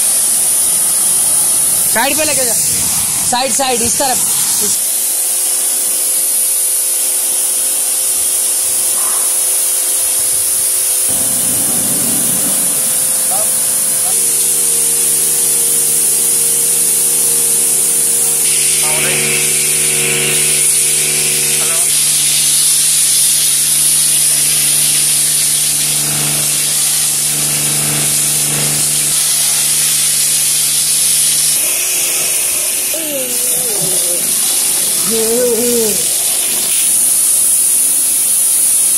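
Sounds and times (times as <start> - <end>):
pressure washer spraying: 0.0 - 38.9
faint steady hum: 11.1 - 22.1.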